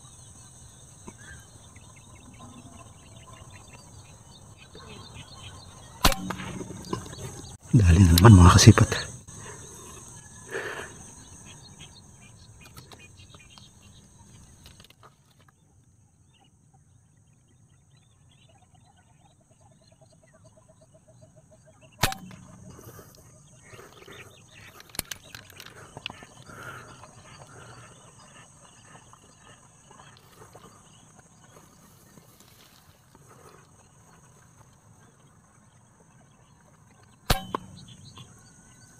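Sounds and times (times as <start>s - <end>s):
sharp crack: 6.0s - 8.3s, 22.0s - 23.2s, 37.3s - 38.4s.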